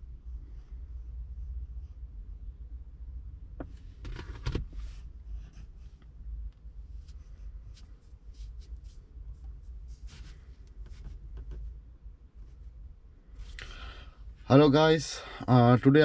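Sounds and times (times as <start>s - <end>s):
low steady rumble: 0.0s - 16.0s
handling noise rubbing and clicking: 3.6s - 11.8s.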